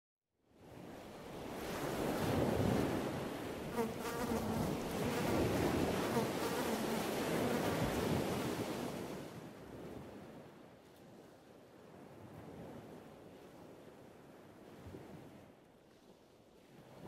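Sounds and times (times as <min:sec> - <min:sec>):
wind: 0:00.3 - 0:17.0
surf washing on beach: 0:00.8 - 0:09.8.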